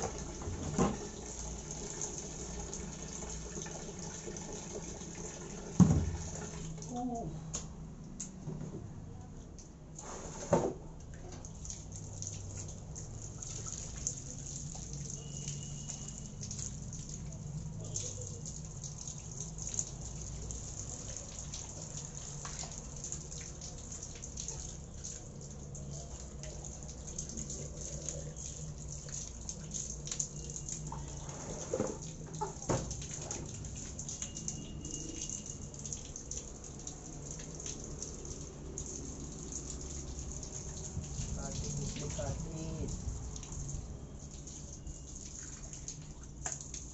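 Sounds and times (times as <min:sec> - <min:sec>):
water running from tap: 0:00.0 - 0:07.2, 0:11.2 - 0:46.9
vegetables rinsed by hand: 0:00.0 - 0:07.5, 0:10.0 - 0:46.9
water dripping: 0:11.0 - 0:46.9.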